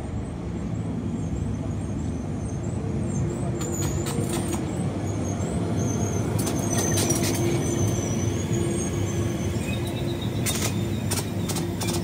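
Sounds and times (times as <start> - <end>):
train wheels rumbling on rail: 0.0 - 12.0
train motor hum: 2.7 - 12.0
high wavering squeals: 5.0 - 12.0.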